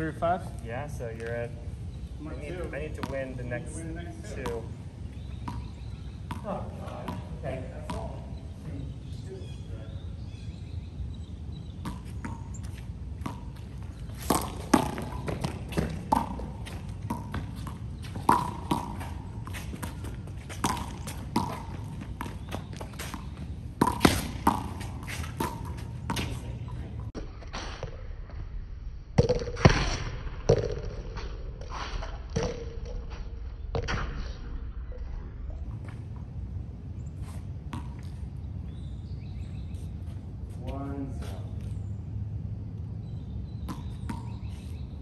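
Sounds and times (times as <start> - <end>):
handball smacks and bounces: 14.2 - 26.4, 43.6 - 44.6.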